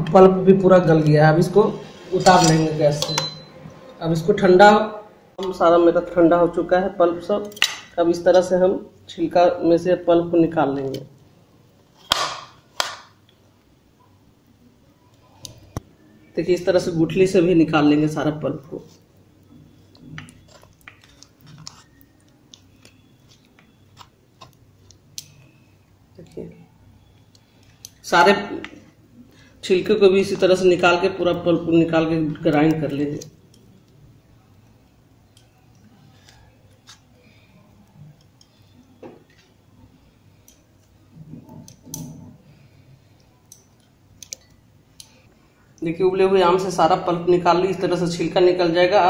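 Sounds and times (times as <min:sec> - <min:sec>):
spoon clinking against steel jar: 0:02.2 - 0:03.5
metal spoon scraping fruit pulp: 0:18.6 - 0:25.6.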